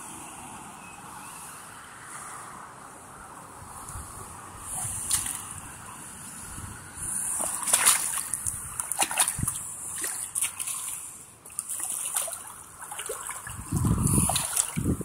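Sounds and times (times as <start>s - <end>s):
pond water splashing: 4.1s - 15.0s.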